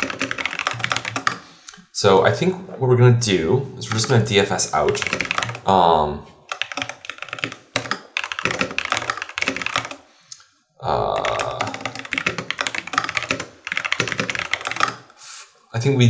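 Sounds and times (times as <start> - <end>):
keyboard typing clicks: 0.0 - 1.4, 4.8 - 5.7, 6.5 - 10.0, 11.1 - 15.0.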